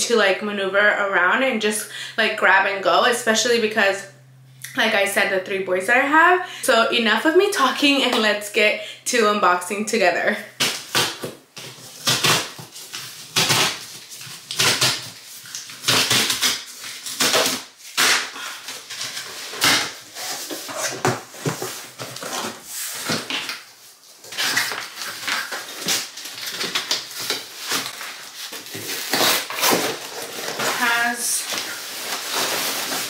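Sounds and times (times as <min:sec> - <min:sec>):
cardboard tearing: 0:10.6 - 0:33.0
cardboard scraping and rustling: 0:18.6 - 0:33.0.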